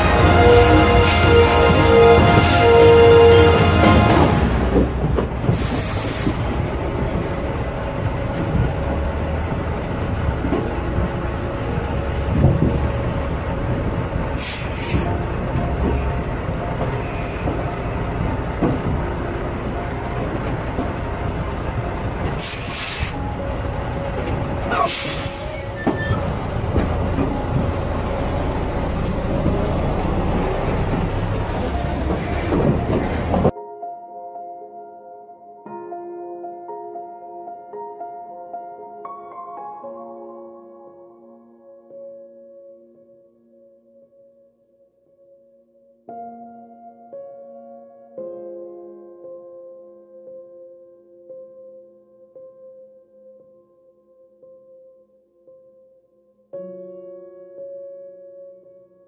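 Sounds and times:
truck engine rumbling: 0.0 - 33.5
loud hisses: 14.4 - 15.1, 22.4 - 23.3, 24.8 - 25.7.

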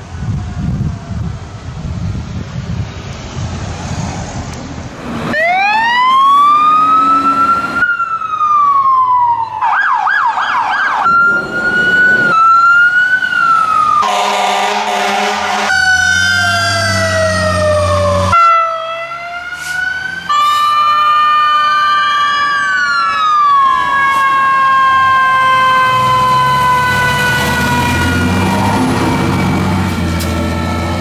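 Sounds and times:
fire truck siren: 0.0 - 2.4, 5.1 - 31.0
engine and traffic rumble: 0.0 - 31.0
horn blast: 14.0 - 16.0.

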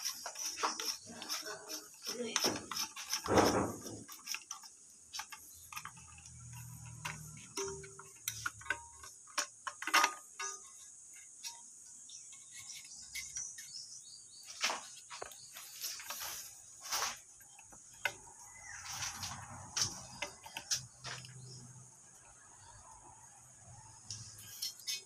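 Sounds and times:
plastic fittings clicking and scraping: 0.0 - 13.8, 14.6 - 21.6, 24.0 - 25.0
sharp knocks: 3.3 - 4.1.

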